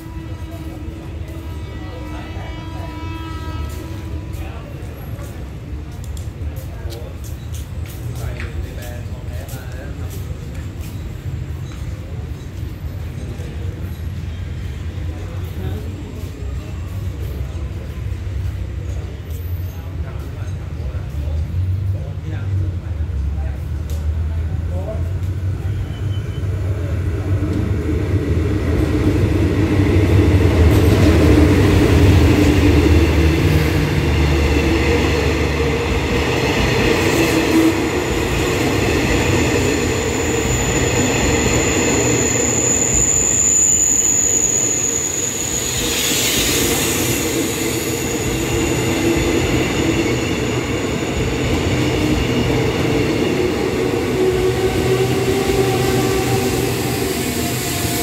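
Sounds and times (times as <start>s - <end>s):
carriages rolling on rails: 0.0s - 58.0s
high brake squeal: 25.6s - 26.9s, 34.8s - 58.0s.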